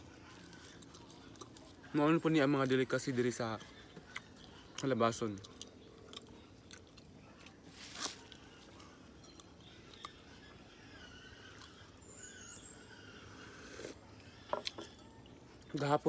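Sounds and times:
faint high chirps: 5.6 - 16.0.

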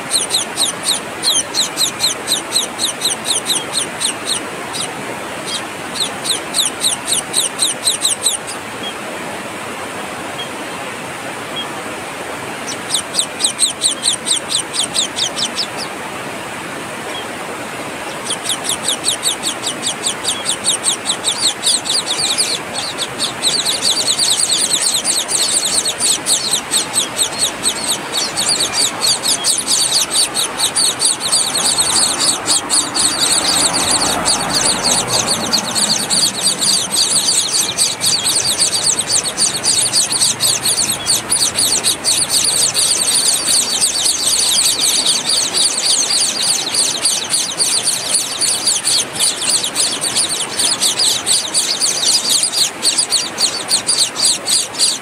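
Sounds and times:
nestlings begging calls: 0.0 - 9.1, 10.2 - 55.0.

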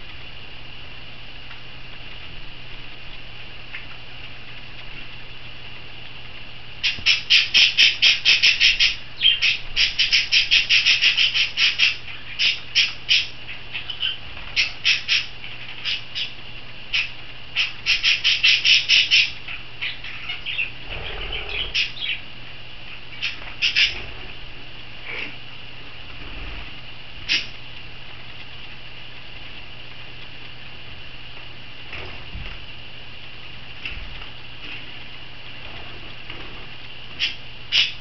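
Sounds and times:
parrot squawking: 6.8 - 22.2, 23.1 - 24.0, 37.2 - 38.0.

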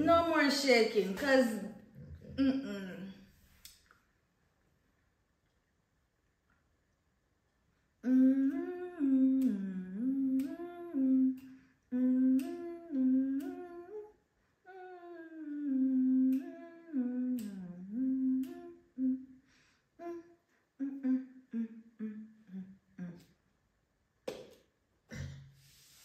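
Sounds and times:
woman humming: 2.2 - 3.3, 8.0 - 19.3, 20.0 - 23.4.

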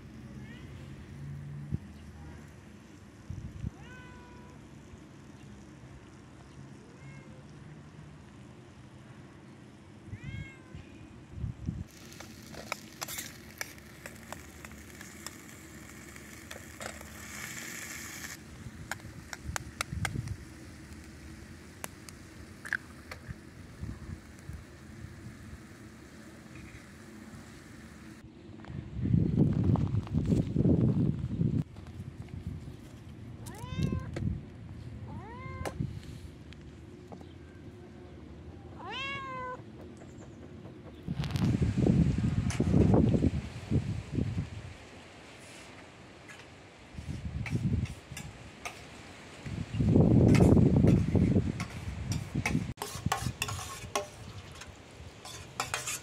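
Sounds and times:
cat meowing: 3.8 - 4.6, 10.1 - 10.9, 33.5 - 34.1, 35.1 - 35.8, 38.8 - 39.6
pops and crackles: 11.9 - 23.5
tomatoes sizzling in a pan: 11.9 - 28.2, 47.5 - 56.0.

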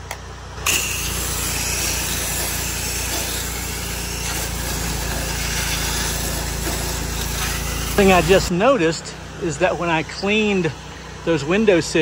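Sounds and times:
pressure washer engine running: 0.0 - 12.0
water jet hissing: 0.6 - 8.5.

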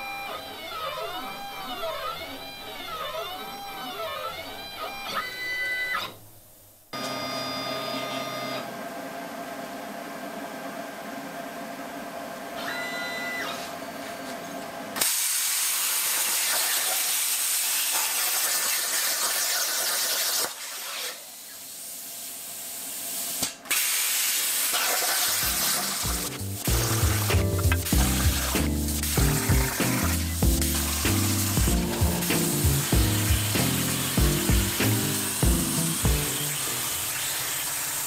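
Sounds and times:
machine hum with short tones: 7.0 - 8.8, 12.6 - 13.7, 25.3 - 38.0
plasma torch hissing: 15.0 - 38.0
low stepped motor tones: 25.4 - 38.0.

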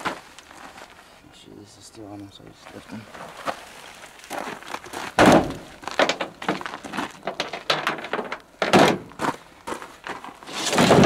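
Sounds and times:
carcass thumping onto tailgate: 5.2 - 6.6, 7.3 - 9.1.

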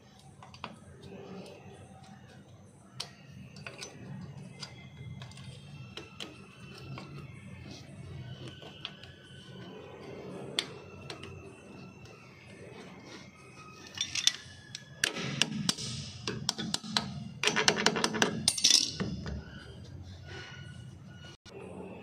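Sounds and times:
faint music: 0.0 - 22.0
metal tools clinking and clattering: 13.7 - 16.1, 17.4 - 19.4.

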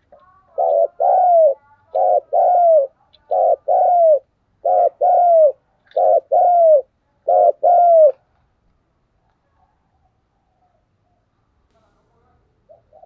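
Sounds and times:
dove cooing: 0.0 - 8.2, 12.6 - 13.0.

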